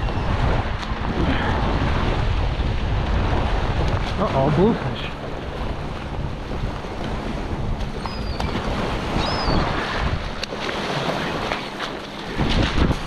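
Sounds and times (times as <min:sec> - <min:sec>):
water splashing: 0:00.0 - 0:13.0
wind buffeting microphone: 0:00.0 - 0:13.0
faint high bird calls: 0:08.0 - 0:09.7.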